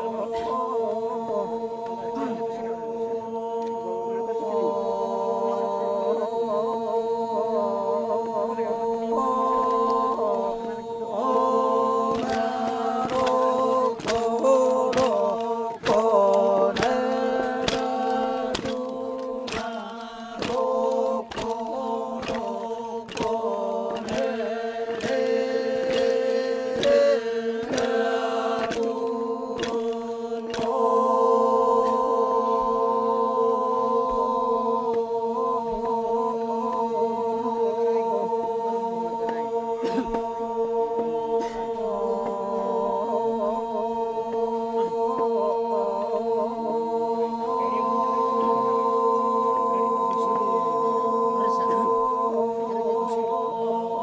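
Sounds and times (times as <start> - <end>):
men's group chanting: 0.0 - 54.0
sharp rhythmic knocks: 9.1 - 37.1.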